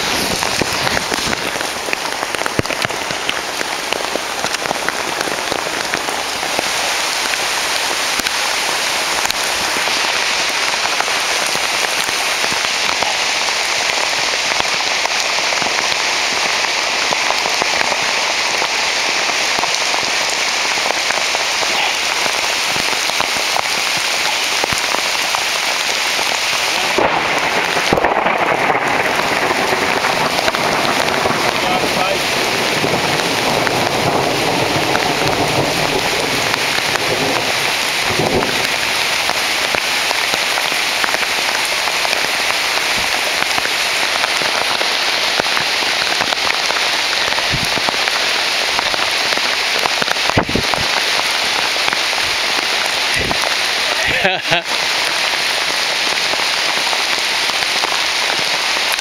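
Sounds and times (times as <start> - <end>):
heavy rain on path and leaves: 0.0 - 59.0.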